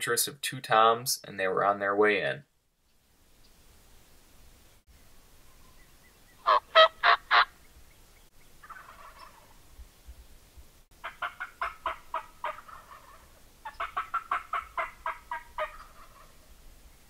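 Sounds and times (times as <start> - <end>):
faint turkey gobble: 5.4 - 7.6, 8.6 - 9.7, 11.0 - 16.5
turkey yelping: 6.4 - 7.5, 8.6 - 9.6, 11.0 - 16.4.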